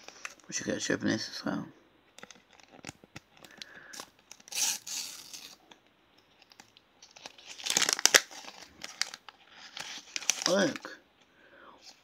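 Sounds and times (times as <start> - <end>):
wrapper crinkling: 2.2 - 5.7, 6.3 - 11.0
paper tearing: 4.5 - 5.6.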